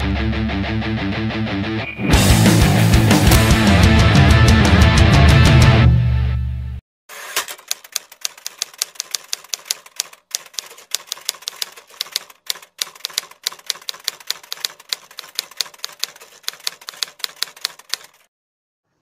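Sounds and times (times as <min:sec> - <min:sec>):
typewriter key clicks: 0:07.2 - 0:18.3.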